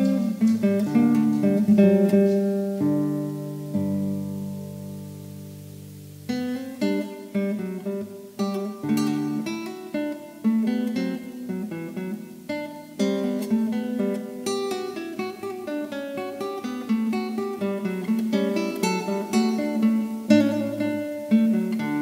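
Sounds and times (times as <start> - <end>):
acoustic guitar music: 0.0 - 22.0.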